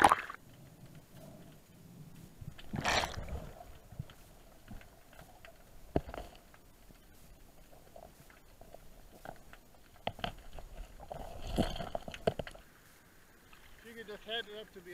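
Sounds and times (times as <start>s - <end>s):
splash: 0.0s - 0.4s, 2.7s - 3.6s
underwater rush of water: 0.0s - 0.4s, 2.5s - 4.1s
faint small ticks: 0.4s - 2.8s, 3.4s - 13.8s.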